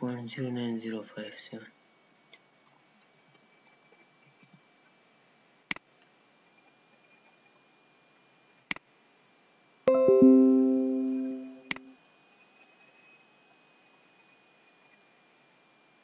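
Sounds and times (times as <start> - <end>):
notification chime: 9.9 - 11.9.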